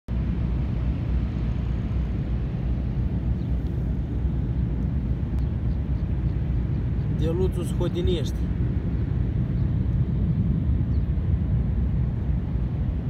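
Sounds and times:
wind buffeting microphone: 0:00.1 - 0:13.0.

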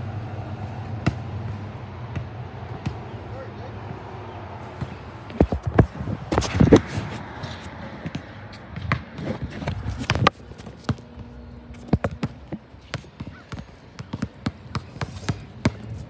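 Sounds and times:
basketball bouncing on hard court: 0:01.0 - 0:03.0, 0:08.0 - 0:16.0.

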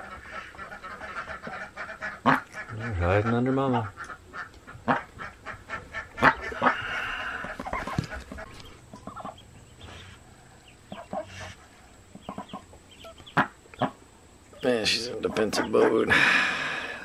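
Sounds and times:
duck low calls: 0:00.0 - 0:10.2
breathy noise: 0:06.5 - 0:07.8.

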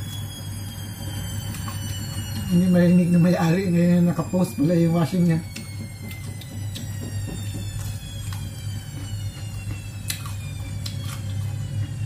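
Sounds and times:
washing machine running: 0:00.0 - 0:12.0
cucumber crunching being chewed: 0:01.4 - 0:02.5, 0:05.5 - 0:12.0.

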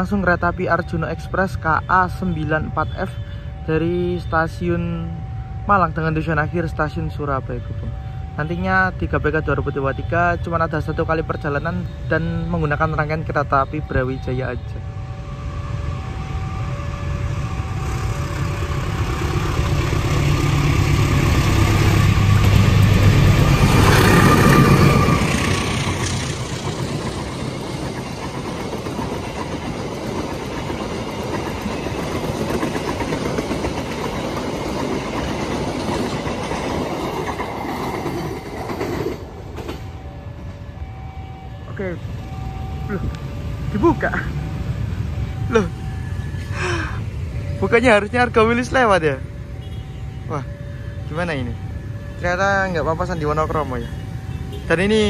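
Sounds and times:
locomotive passing: 0:00.0 - 0:55.0
train wheel clatter: 0:19.1 - 0:39.9.

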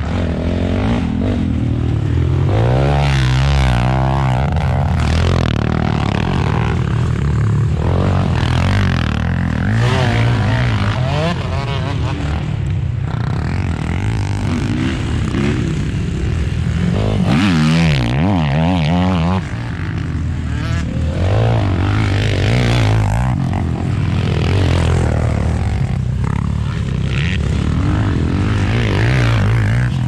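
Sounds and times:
off-road vehicle engine revving: 0:00.0 - 0:12.6.

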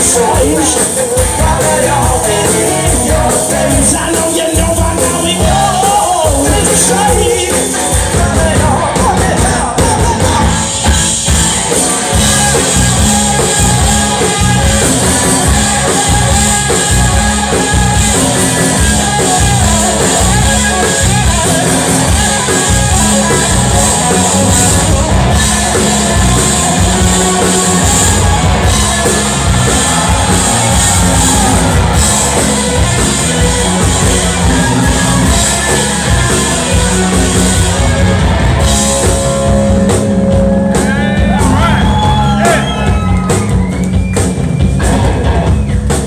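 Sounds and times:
bass guitar: 0:00.0 - 0:46.0
drum kit: 0:00.0 - 0:46.0
electric guitar: 0:00.0 - 0:46.0.

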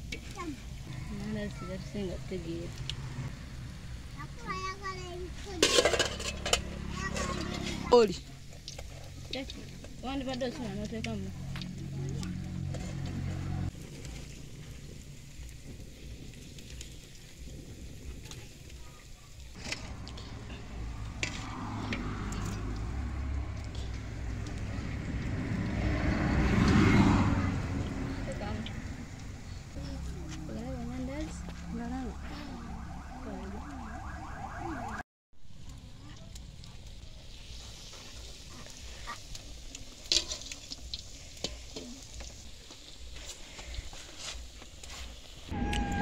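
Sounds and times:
dough sizzling in hot oil: 0:00.0 - 0:32.0, 0:35.4 - 0:45.6
broad rushing noise: 0:19.6 - 0:33.2.

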